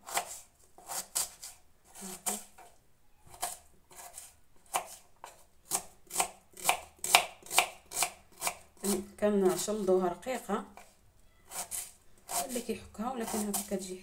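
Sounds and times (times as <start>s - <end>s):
knife chopping on wooden board: 0.0s - 1.5s, 3.3s - 9.6s.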